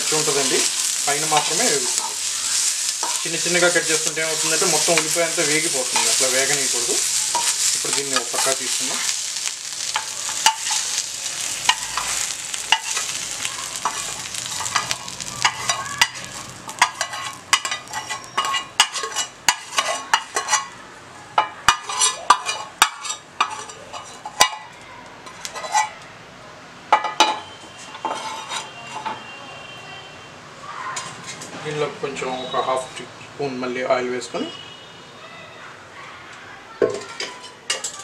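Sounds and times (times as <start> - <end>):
metal spatula scraping a pan: 0.0 - 20.7, 21.7 - 24.5, 25.3 - 26.0, 27.7 - 29.2
hot oil sizzling: 0.0 - 20.8, 21.4 - 26.0.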